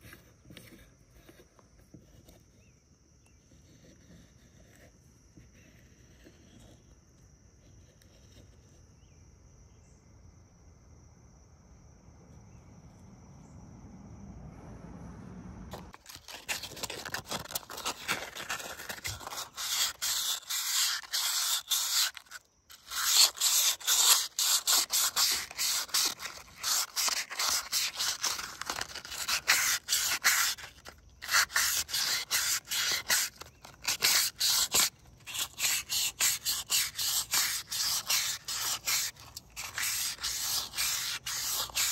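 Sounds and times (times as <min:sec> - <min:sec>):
sandpaper scrubbing metal: 0:16.2 - 0:41.9.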